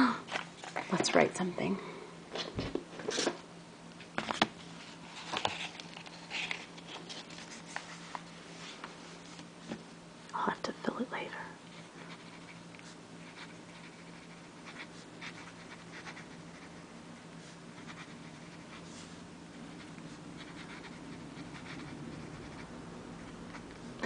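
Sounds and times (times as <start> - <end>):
steady low hum: 0.0 - 24.0
pen nib writing on paper: 13.3 - 16.8, 17.8 - 18.8, 19.8 - 22.7.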